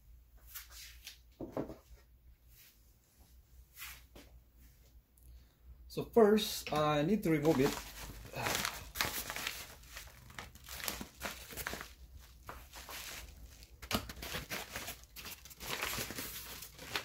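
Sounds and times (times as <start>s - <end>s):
padded envelope crinkling: 6.6s - 17.0s.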